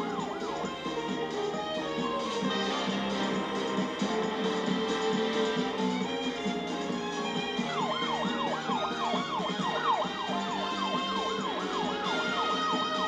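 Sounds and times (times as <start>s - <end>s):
police siren yelping: 0.0s - 3.1s, 7.4s - 13.0s.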